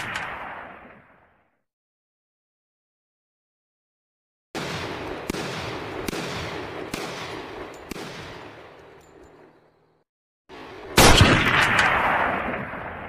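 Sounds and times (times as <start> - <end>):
gunshots: 0.0 - 1.1, 4.6 - 8.9, 10.6 - 13.0.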